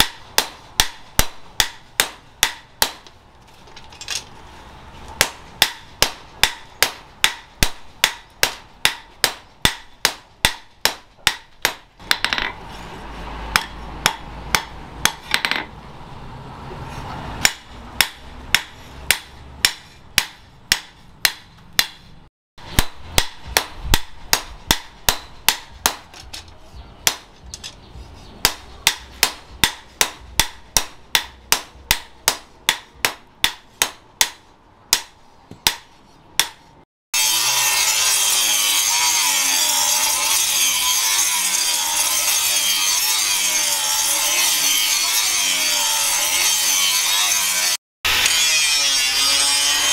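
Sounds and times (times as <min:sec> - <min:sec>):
hammer striking metal on anvil: 0:17.4 - 0:22.0, 0:22.7 - 0:26.1.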